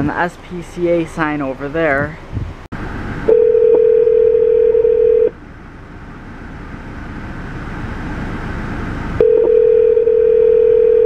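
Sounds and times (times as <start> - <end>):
telephone ringback tone: 3.3 - 5.3, 9.2 - 11.0.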